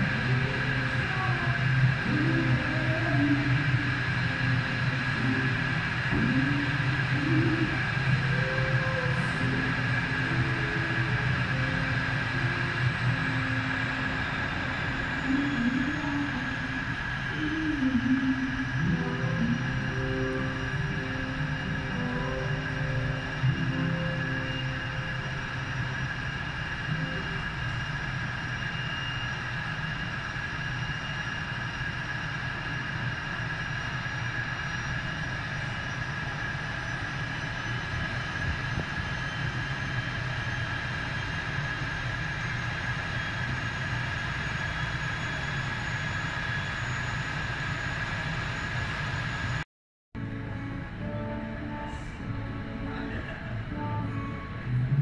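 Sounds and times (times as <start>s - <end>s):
wavering tones: 0.0s - 29.7s
engine rumble with high whine: 0.0s - 49.6s, 50.2s - 55.0s.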